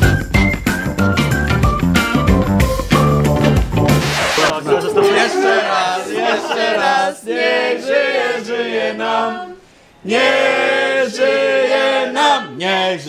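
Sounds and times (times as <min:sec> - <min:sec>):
group of people singing: 0:04.0 - 0:13.0.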